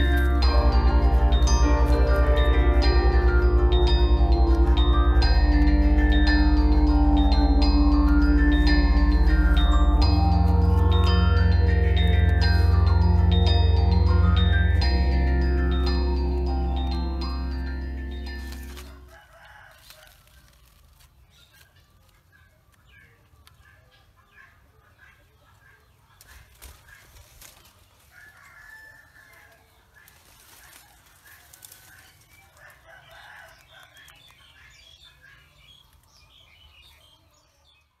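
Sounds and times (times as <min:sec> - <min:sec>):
rooster crowing: 0:00.0 - 0:20.4, 0:28.0 - 0:29.8, 0:30.6 - 0:34.2
faint chickens clucking: 0:21.6 - 0:37.6.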